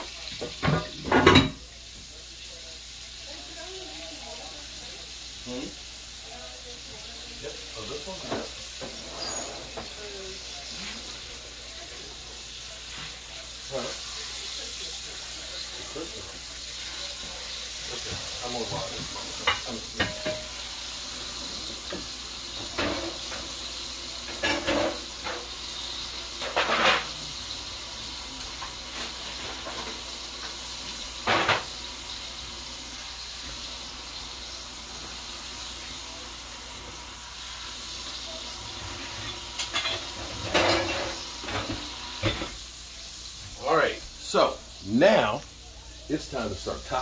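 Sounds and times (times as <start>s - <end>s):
tongs and kitchenware clattering: 0.0s - 1.7s, 7.4s - 20.8s, 21.4s - 27.8s, 38.0s - 42.6s
chicken sizzling in oil: 0.0s - 47.0s.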